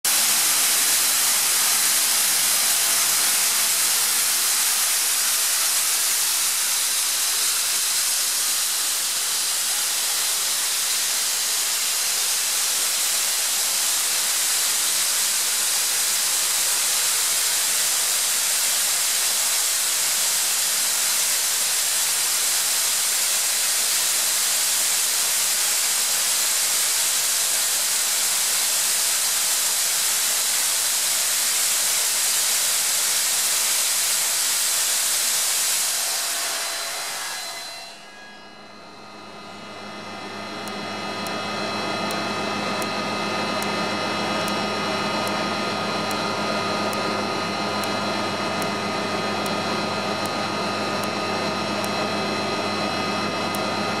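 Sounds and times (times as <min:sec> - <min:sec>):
compressor hum and whine: 0:00.0 - 0:54.0
air venting hiss: 0:00.1 - 0:37.4.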